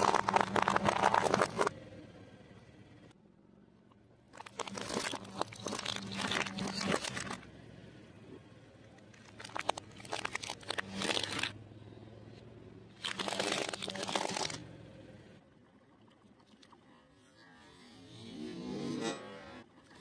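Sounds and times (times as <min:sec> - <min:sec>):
plastic toys cracking under tyre: 0:00.0 - 0:01.7, 0:04.3 - 0:07.4, 0:09.0 - 0:11.6, 0:13.0 - 0:14.6.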